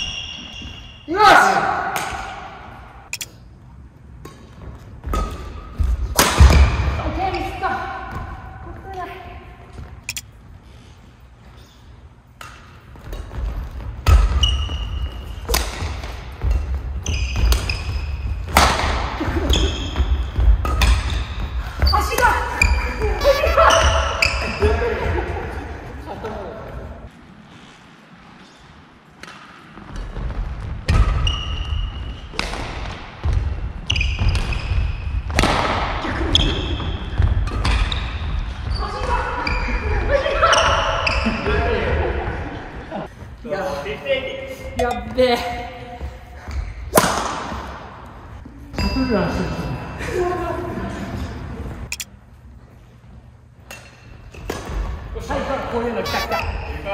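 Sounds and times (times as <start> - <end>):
shoes squeaking: 0.0 - 1.1, 7.0 - 18.6, 19.2 - 25.2, 44.7 - 47.0, 51.8 - 56.9
racket striking shuttlecock: 4.2 - 6.8, 15.4 - 17.9.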